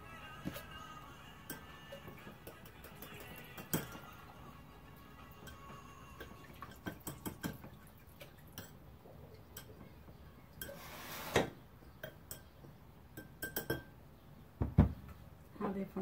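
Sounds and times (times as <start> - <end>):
spoon scraping glass bowl: 1.3 - 4.4, 5.1 - 7.6, 10.6 - 11.4
spoon clinking in glass bowl: 1.4 - 4.4, 5.1 - 7.7, 8.5 - 8.8, 12.0 - 13.9.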